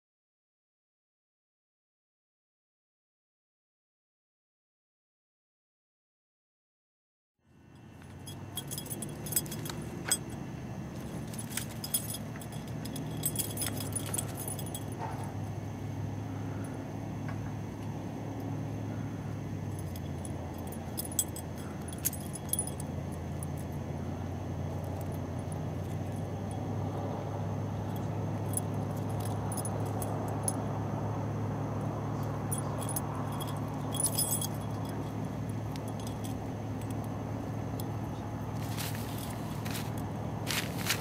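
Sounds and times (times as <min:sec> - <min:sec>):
steady low hum: 0:07.4 - 0:41.0
cat collar tinkling: 0:07.8 - 0:15.4, 0:19.6 - 0:26.9, 0:27.7 - 0:30.7, 0:31.7 - 0:41.0
tent fabric rustling: 0:38.6 - 0:41.0.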